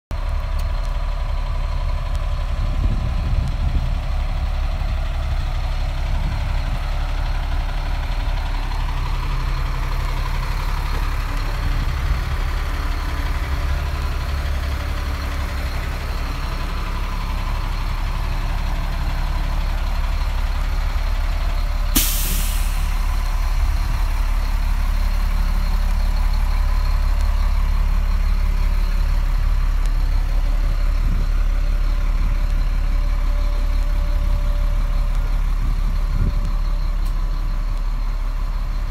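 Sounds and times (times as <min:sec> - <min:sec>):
diesel truck engine idling: 0:00.1 - 0:38.9
air release hiss: 0:22.0 - 0:23.0.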